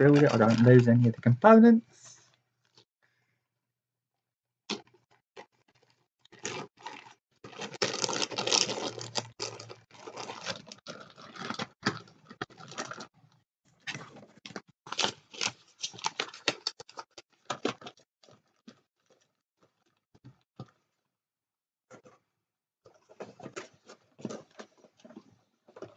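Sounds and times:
plastic bags crinkling: 0:00.0 - 0:01.1, 0:04.7 - 0:13.1, 0:13.9 - 0:19.3.

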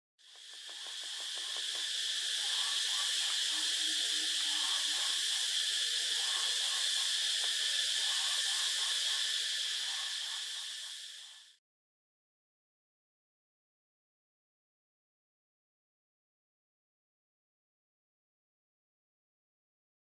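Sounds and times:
insect chorus buzzing: 0:00.2 - 0:11.6.

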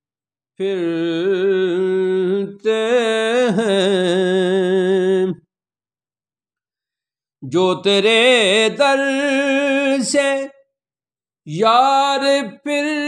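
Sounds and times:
man singing unaccompanied: 0:00.6 - 0:05.5, 0:07.4 - 0:10.8, 0:11.4 - 0:13.0.

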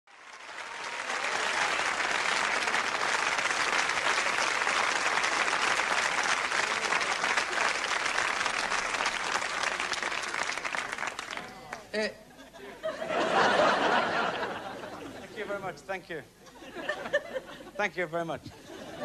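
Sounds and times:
audience applauding: 0:00.1 - 0:12.0.

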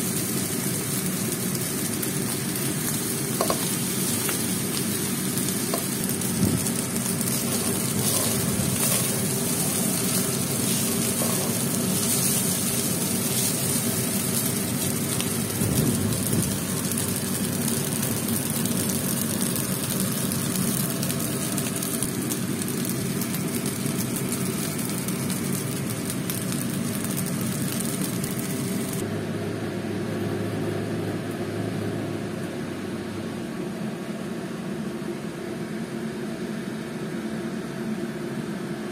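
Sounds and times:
rice sizzling in a pan: 0:00.0 - 0:29.1
steady low hum: 0:00.0 - 0:38.9
spatula scraping a pan: 0:07.4 - 0:13.8.

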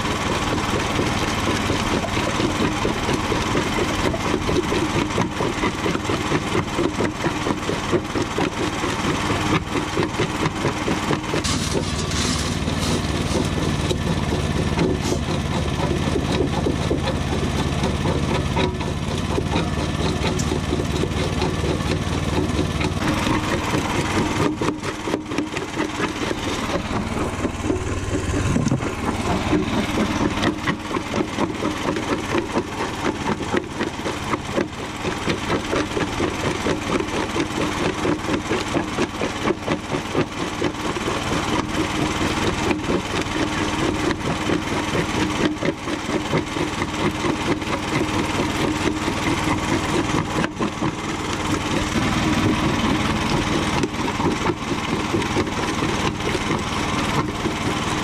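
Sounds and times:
concrete crunching in crusher: 0:00.0 - 0:58.0
motor drone: 0:00.0 - 0:58.0
deep steady hum: 0:11.4 - 0:36.6.

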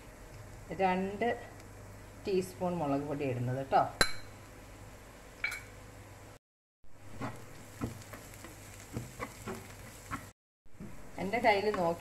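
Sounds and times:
onions frying in oil: 0:06.9 - 0:12.0
spatula scraping pan: 0:07.2 - 0:10.3.

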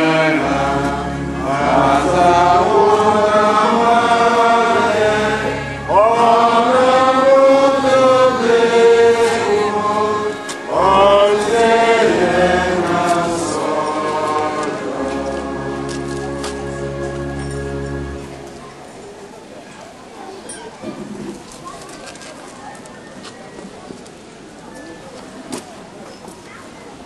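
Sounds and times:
man singing a chant: 0:00.0 - 0:16.0
low sustained accompanying notes: 0:00.0 - 0:18.9.

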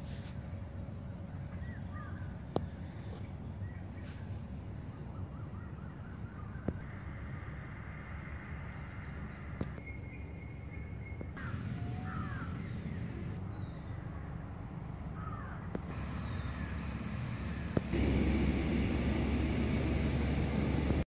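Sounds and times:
low outdoor rumble: 0:00.0 - 0:21.0
crows cawing: 0:01.9 - 0:02.2, 0:11.4 - 0:12.5, 0:15.2 - 0:15.7.

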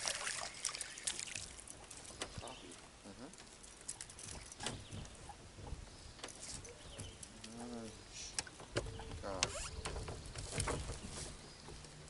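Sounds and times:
light water splashing: 0:00.0 - 0:04.9.

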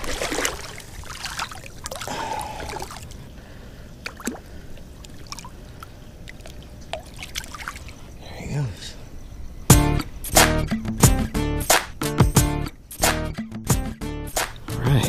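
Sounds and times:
shallow water splashing: 0:00.0 - 0:03.3, 0:04.0 - 0:08.1
water drips: 0:00.0 - 0:08.1.

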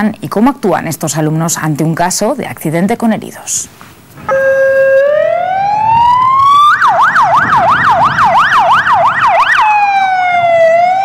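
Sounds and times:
ambulance siren wailing and yelping: 0:04.3 - 0:11.0.

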